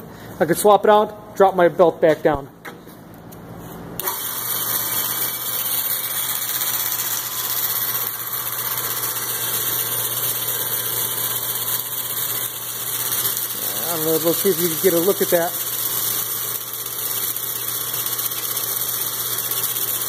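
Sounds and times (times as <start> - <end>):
motor hum: 3.1 - 20.0
abrasive belt whirring: 4.0 - 20.0.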